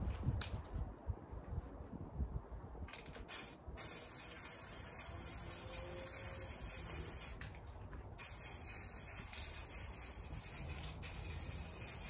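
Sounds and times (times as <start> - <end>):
aerosol spray can hissing: 3.2 - 7.4, 8.2 - 12.0.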